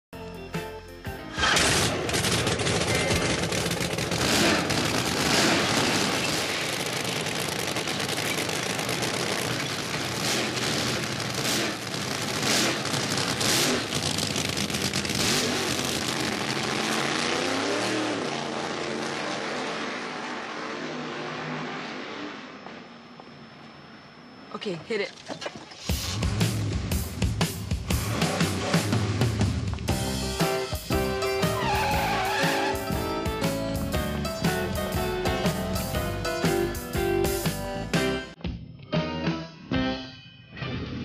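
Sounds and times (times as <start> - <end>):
dragster engine idling with popping: 1.4 - 16.7.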